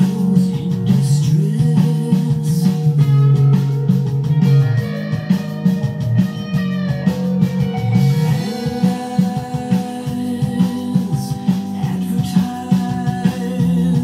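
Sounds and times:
electric guitar riff: 2.8s - 11.8s.

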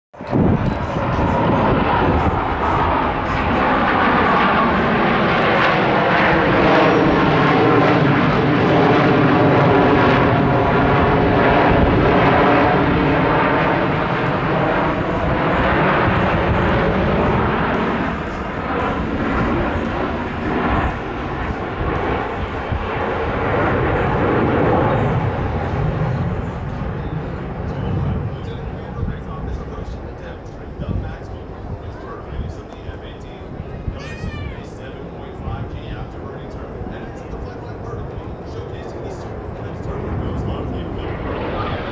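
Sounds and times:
jets roaring overhead: 0.2s - 41.9s.

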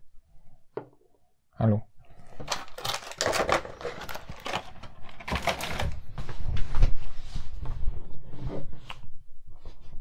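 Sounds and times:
plastic packaging crinkling: 2.2s - 6.0s.

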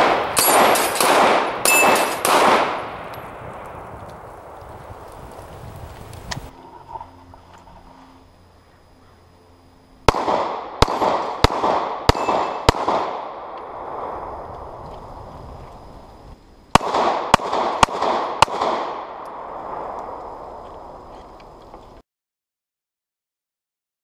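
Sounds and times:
pistol shots echoing: 0.0s - 3.7s, 10.1s - 14.1s, 16.7s - 20.0s.

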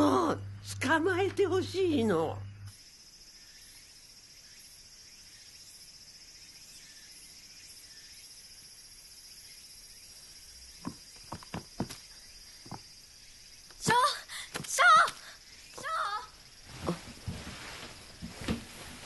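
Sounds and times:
insects chirring: 0.0s - 19.0s.

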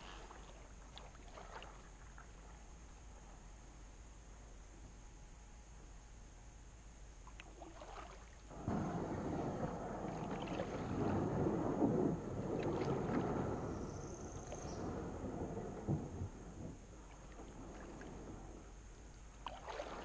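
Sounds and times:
water splashing against kayak hull: 0.0s - 2.5s, 7.3s - 20.0s.

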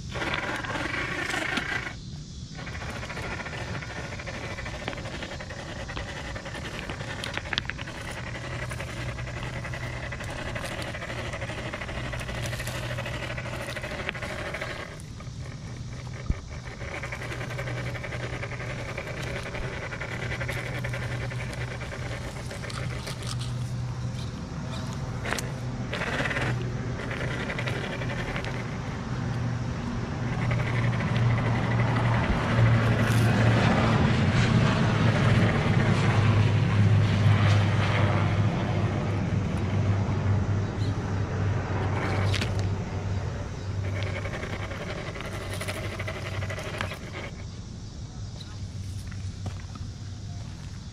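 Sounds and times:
electric motor whining: 0.0s - 47.5s
tyres clacking against stone: 2.6s - 29.4s.

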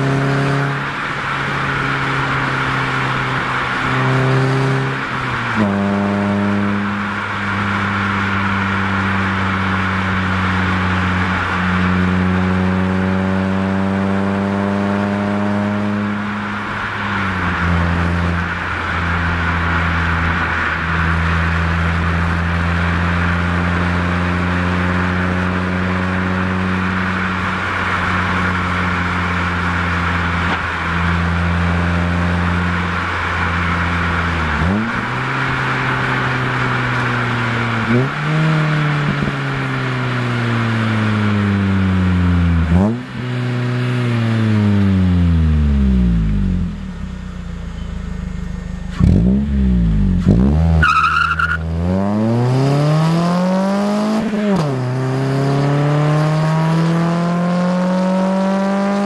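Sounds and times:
road and wind hiss: 0.0s - 59.0s
car exhaust note: 11.1s - 53.1s.

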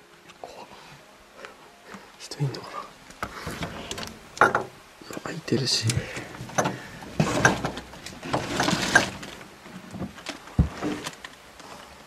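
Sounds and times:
door handled and opened: 3.2s - 4.8s.

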